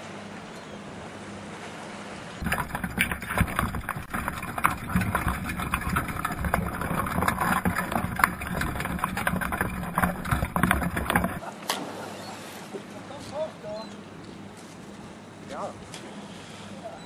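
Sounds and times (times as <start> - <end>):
crab shells clicking and knocking: 2.4 - 11.4
steady low hum: 2.4 - 11.4.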